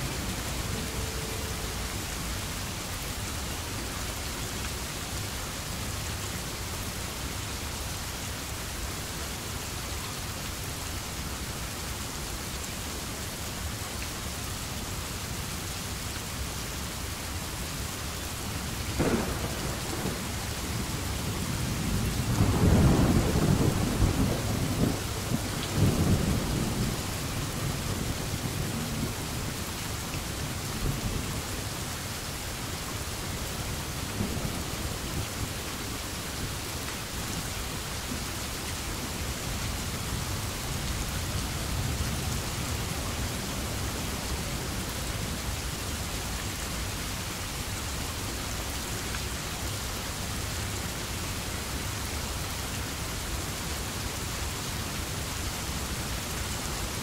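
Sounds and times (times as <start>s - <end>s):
steady rain: 0.0s - 57.0s
thunder crack and rumble: 19.0s - 29.3s.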